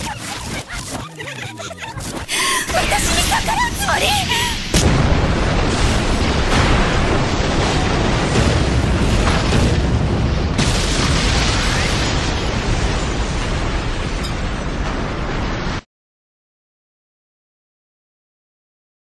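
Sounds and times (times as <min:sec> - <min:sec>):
explosion blast with deep rumble: 0:02.6 - 0:15.8.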